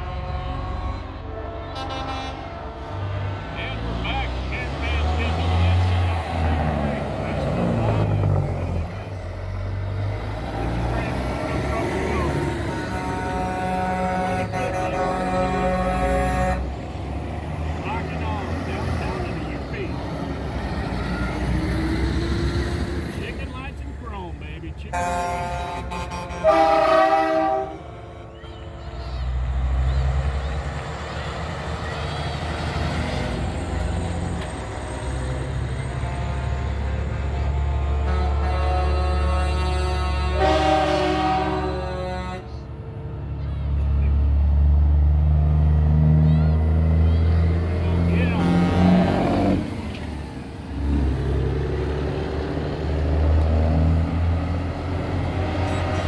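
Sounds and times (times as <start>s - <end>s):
truck air horn blast: 0.0s - 3.3s, 11.5s - 16.8s, 24.9s - 28.3s, 35.9s - 42.6s, 48.0s - 49.6s
diesel engine rumbling past: 0.0s - 56.0s.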